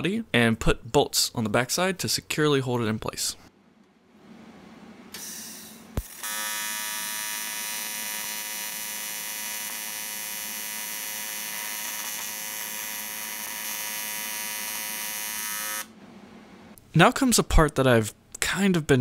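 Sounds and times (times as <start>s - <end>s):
welding arc buzz: 5.1s - 15.9s.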